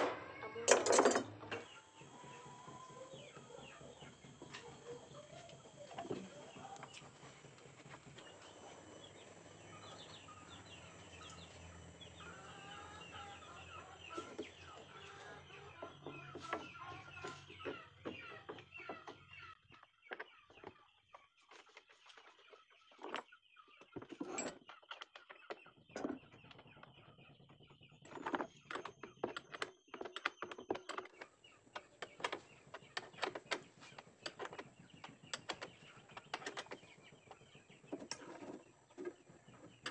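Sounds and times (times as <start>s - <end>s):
sharp clicks and knocks: 0.0s - 1.8s, 28.1s - 39.9s
chickens clucking: 0.0s - 39.9s.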